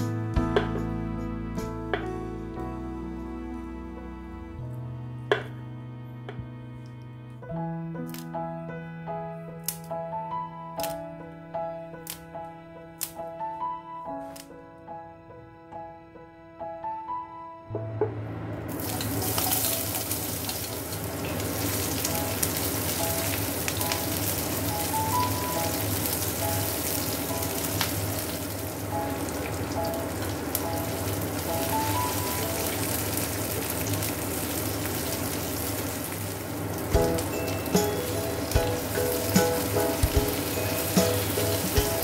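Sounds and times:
soft background music: 0.0s - 42.0s
onion sizzling in oil: 18.7s - 42.0s.

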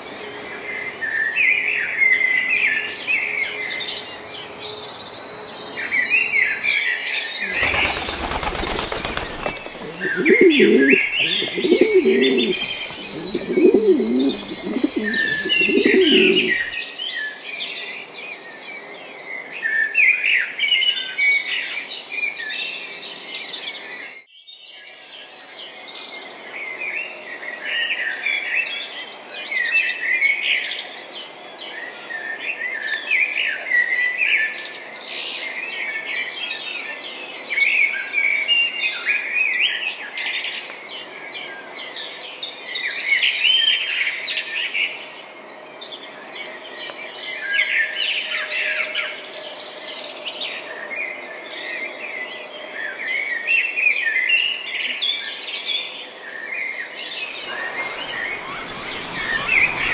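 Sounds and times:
small birds chirping and trilling: 7.3s - 16.8s, 54.6s - 59.9s.

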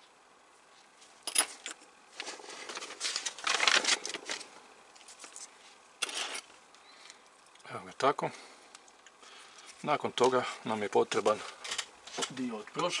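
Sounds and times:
rustling and scraping: 0.6s - 6.7s.

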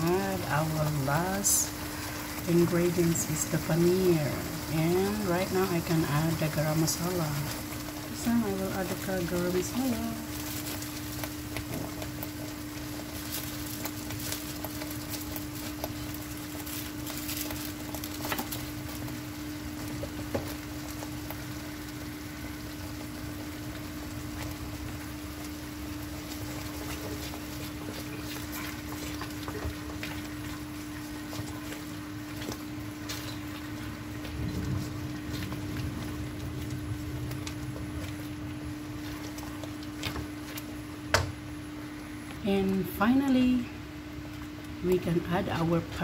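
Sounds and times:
gravy simmering and sputtering: 0.0s - 46.0s
steady hum: 0.0s - 46.0s
wooden spoon stirring: 26.0s - 40.8s.

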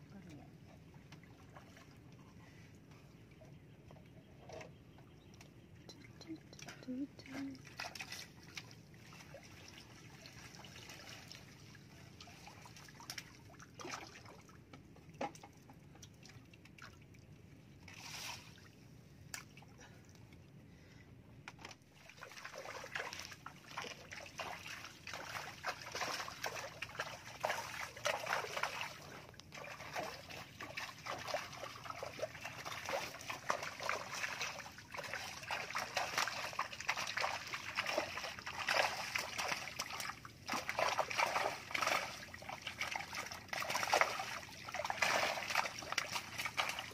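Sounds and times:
water sloshing and splashing: 0.1s - 46.9s.

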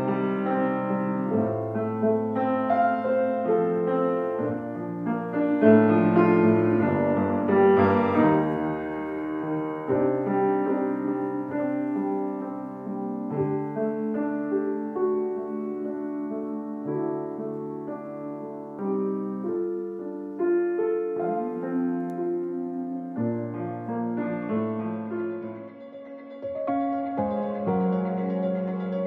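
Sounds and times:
piano background music: 0.0s - 29.0s.

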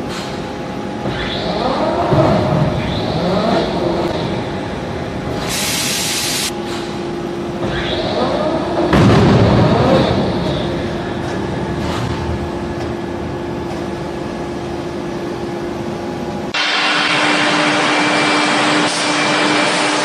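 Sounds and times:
steady machine hum: 0.0s - 20.0s
loud hiss: 5.4s - 6.5s.

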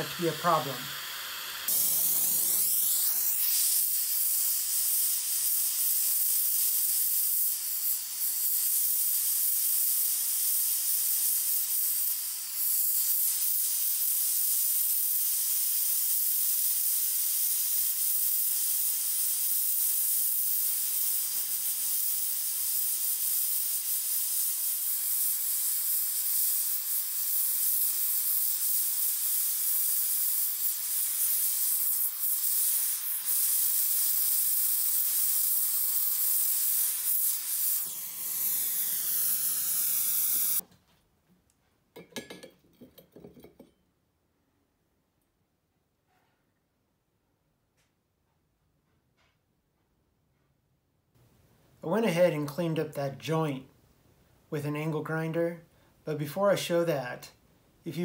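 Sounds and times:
torch flame hissing: 0.0s - 40.6s.

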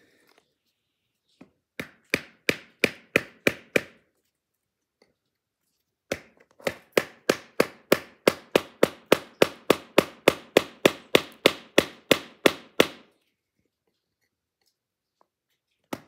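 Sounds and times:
knife hacking into hard wood: 1.8s - 4.0s, 6.1s - 13.0s.

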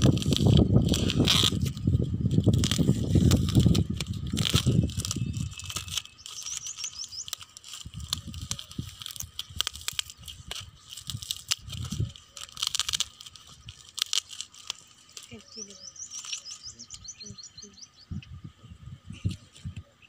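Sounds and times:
low rumble: 0.0s - 6.2s
wrapping paper tearing and rustling: 0.0s - 16.6s
bird chirping: 4.4s - 8.4s, 15.2s - 20.0s.

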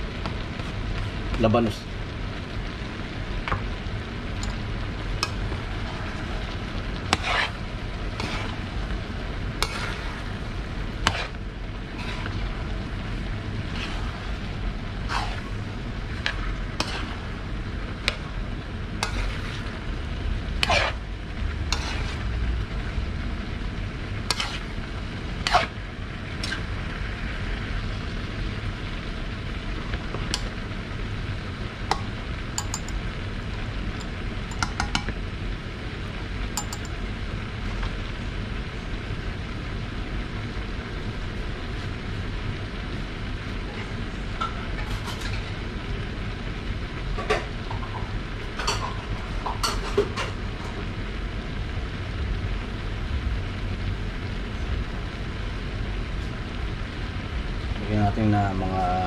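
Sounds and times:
food sizzling: 0.0s - 59.0s
spatula scraping metal wok: 5.2s - 17.4s, 19.0s - 19.8s, 20.5s - 22.4s, 24.2s - 25.8s, 26.4s - 26.7s.

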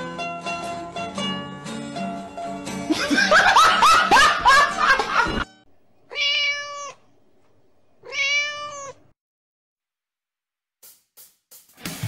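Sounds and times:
background music: 0.0s - 5.6s, 11.6s - 12.0s
cat meowing: 6.1s - 7.0s, 8.0s - 9.2s.

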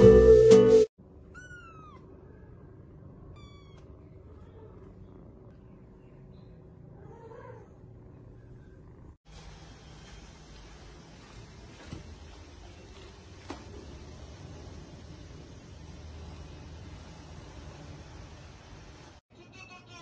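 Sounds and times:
faint room noise: 1.0s - 20.0s
kitten meowing: 1.3s - 2.1s, 3.3s - 3.9s.

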